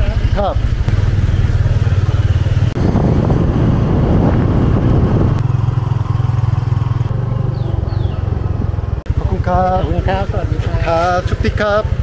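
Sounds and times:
motorcycle engine running: 0:00.0 - 0:12.0
rough rushing noise: 0:00.8 - 0:09.0.

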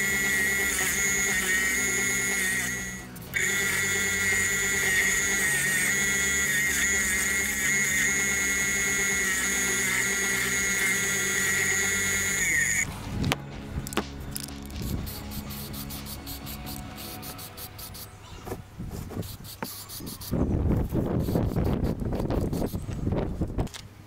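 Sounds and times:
bench grinder whining: 0:00.0 - 0:12.9
background music: 0:00.0 - 0:18.8.

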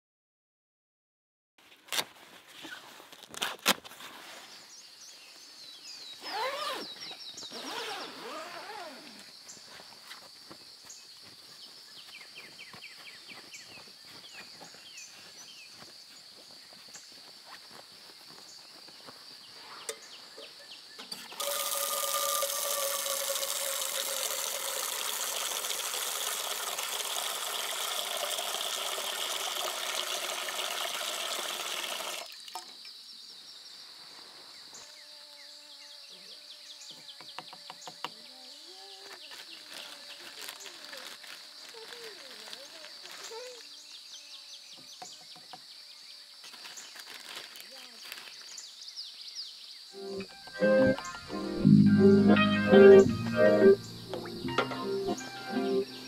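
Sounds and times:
faint high insect drone: 0:07.5 - 0:56.0
tap water pouring into metal pot: 0:21.4 - 0:32.6.

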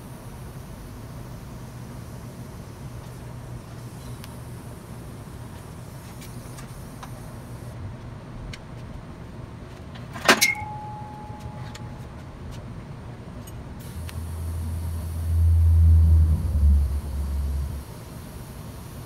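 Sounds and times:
welding arc buzzing hum: 0:00.0 - 0:07.8, 0:13.8 - 0:19.0
metal clank with ringing: 0:10.3 - 0:12.0.

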